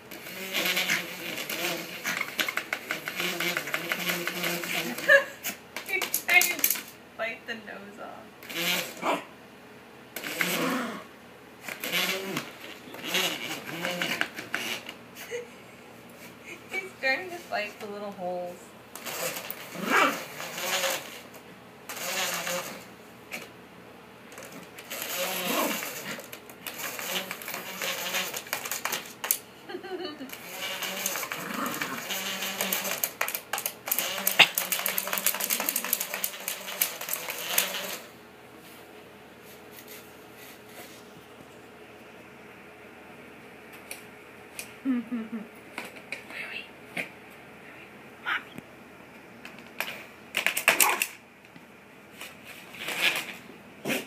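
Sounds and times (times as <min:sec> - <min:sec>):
dog claws scratching plastic board: 0:00.6 - 0:05.1, 0:11.7 - 0:15.0, 0:24.4 - 0:29.4, 0:30.8 - 0:38.0
small dog growling and barking: 0:08.8 - 0:09.4, 0:10.2 - 0:11.1, 0:19.3 - 0:21.1, 0:25.0 - 0:26.3, 0:30.4 - 0:33.2, 0:33.9 - 0:38.0, 0:50.7 - 0:51.2, 0:52.8 - 0:54.0.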